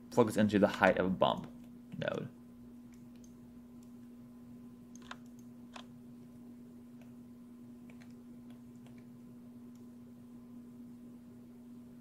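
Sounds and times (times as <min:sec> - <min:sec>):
steady low hum: 0:00.0 - 0:12.0
mouse and keyboard clicks: 0:04.9 - 0:05.9.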